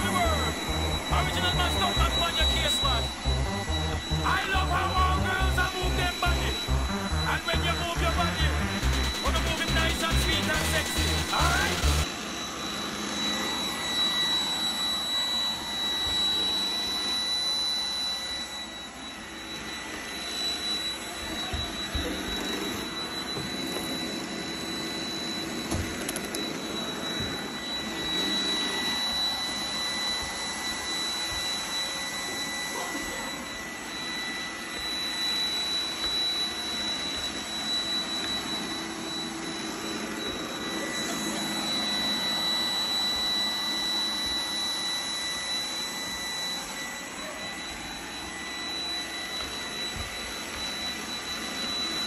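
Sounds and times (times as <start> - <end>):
robot vacuum whirring: 10.9 - 52.0.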